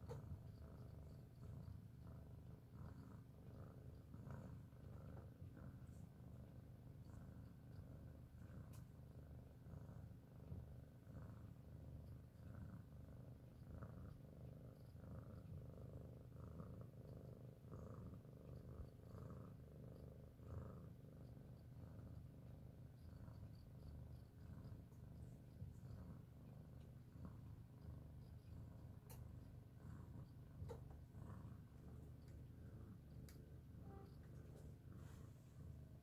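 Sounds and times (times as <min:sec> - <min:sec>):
cat purring: 0:00.0 - 0:36.0.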